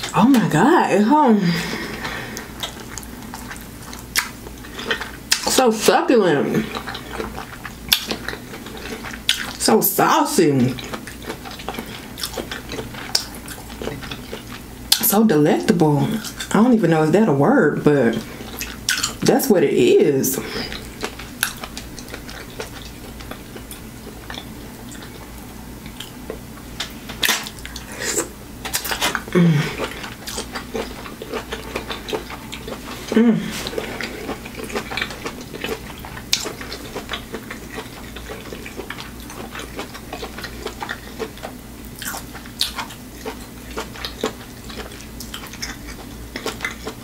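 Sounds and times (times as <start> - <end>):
chewing and lip smacking: 1.8 - 5.6, 6.6 - 9.6, 10.6 - 15.1, 18.1 - 19.2, 20.4 - 47.0
low hum of enjoyment: 19.6 - 43.3.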